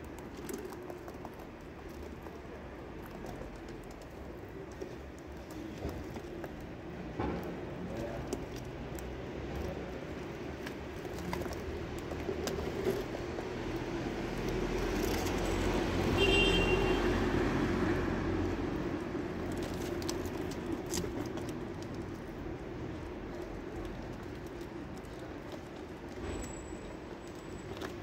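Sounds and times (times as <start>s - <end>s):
passing vehicle rumble: 16.8s - 27.2s.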